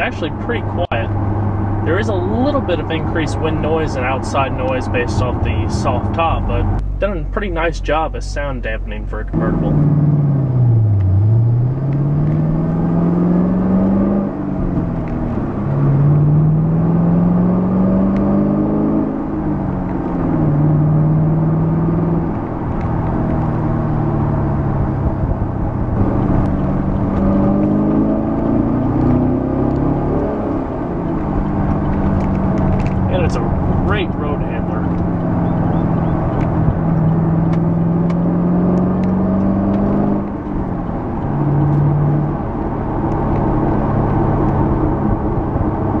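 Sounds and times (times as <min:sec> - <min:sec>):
car engine accelerating through gears: 0:09.3 - 0:46.0.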